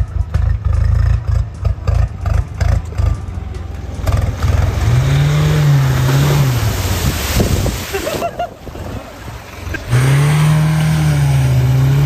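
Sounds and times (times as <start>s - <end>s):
engine revving: 0.0s - 7.5s, 9.6s - 12.0s
water splashing: 2.8s - 12.0s.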